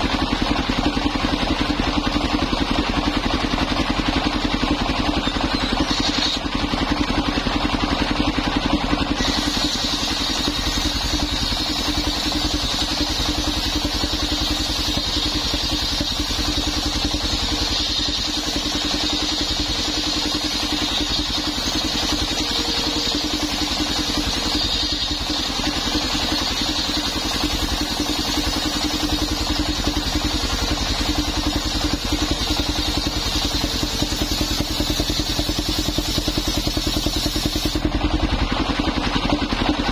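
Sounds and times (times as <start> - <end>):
engine running steadily: 0.0 - 39.9
saw blade cutting wood: 4.4 - 8.0, 9.0 - 37.9.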